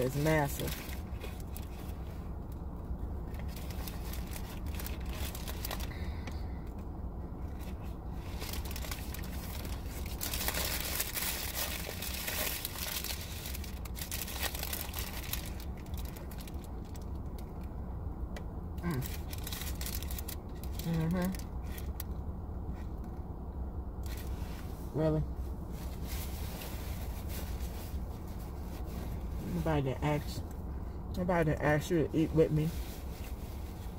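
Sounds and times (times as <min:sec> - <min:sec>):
steady low hum: 0:00.0 - 0:33.9
paper wrapper crinkling: 0:03.3 - 0:06.0, 0:07.5 - 0:17.7, 0:18.8 - 0:22.1.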